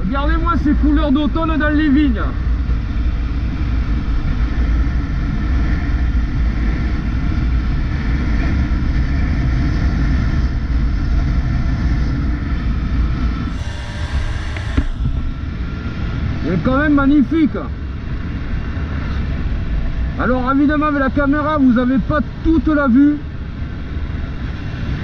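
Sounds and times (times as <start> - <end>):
motorcycle engine running: 0.0 - 17.2
wind rush on microphone: 0.0 - 25.0.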